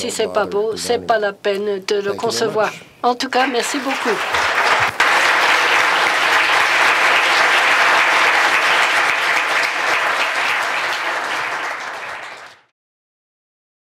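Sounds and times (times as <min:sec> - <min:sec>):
audience applauding: 0:03.4 - 0:12.7.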